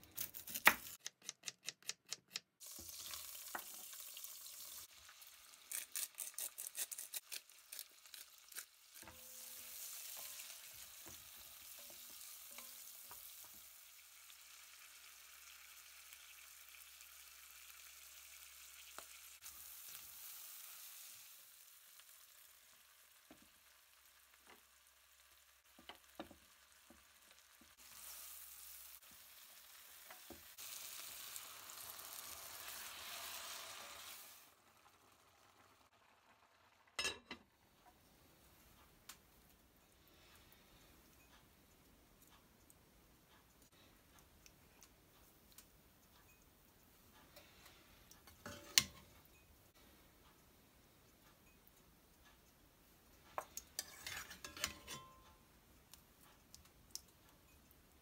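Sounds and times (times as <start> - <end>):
vegetables sizzling in oil: 2.6 - 37.4, 48.2 - 49.8, 53.4 - 55.3.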